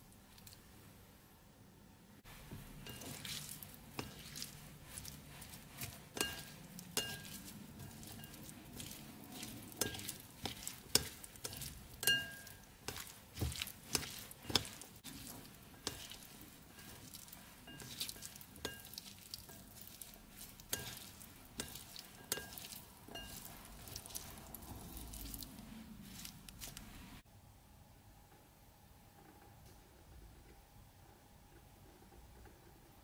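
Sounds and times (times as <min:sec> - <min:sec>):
wet rustle of shredded beet: 0:02.2 - 0:27.2
chopsticks tapping ceramic bowl: 0:02.8 - 0:25.5.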